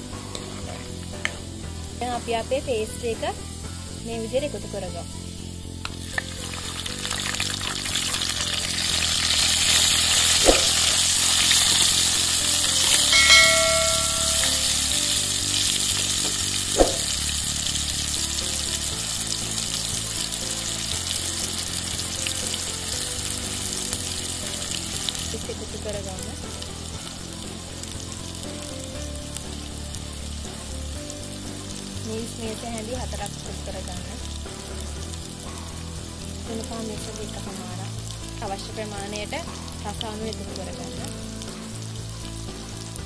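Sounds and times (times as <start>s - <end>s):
background music: 0.0s - 43.0s
spice paste sizzling in oil: 0.0s - 43.0s
short chime: 13.1s - 14.9s.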